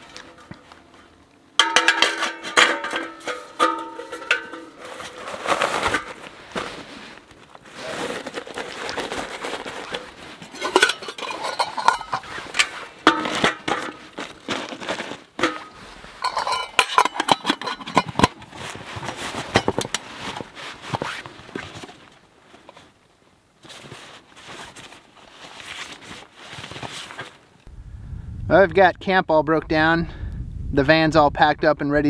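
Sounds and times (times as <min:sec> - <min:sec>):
nylon sack rustling: 0:04.8 - 0:16.6, 0:18.5 - 0:22.9
metal parts clinking: 0:10.0 - 0:13.9, 0:15.4 - 0:18.4.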